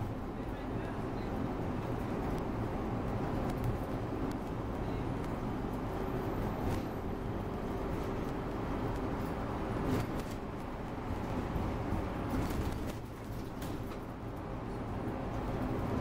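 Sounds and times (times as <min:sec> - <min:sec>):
bus engine and road rumble: 0:00.0 - 0:16.0.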